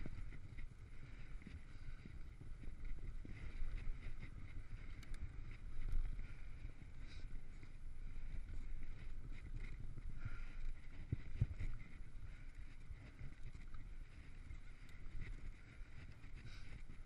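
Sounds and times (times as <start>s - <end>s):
bike tyres rumbling on dirt: 0.0s - 17.0s
wind buffeting microphone: 0.0s - 17.0s
bike rattling clicks: 3.3s - 6.5s.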